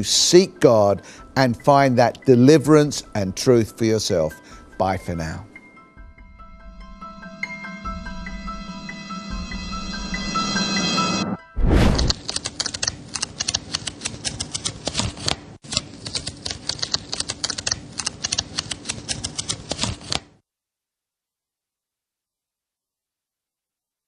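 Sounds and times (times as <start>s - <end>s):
loud whoosh: 11.0s - 12.2s
typing clicks: 12.1s - 20.2s.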